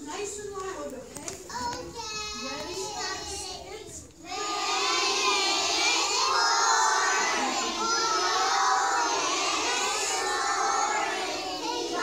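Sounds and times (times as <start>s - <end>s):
children singing together: 4.2s - 12.0s.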